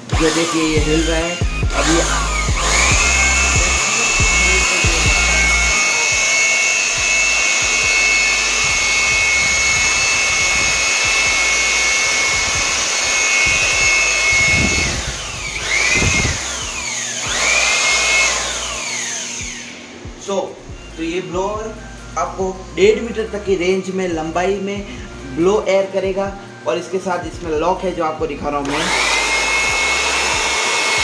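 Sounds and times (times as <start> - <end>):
electric blower motor whine: 0.0 - 26.8, 27.4 - 31.0
air rushing from nozzle: 12.3 - 17.0.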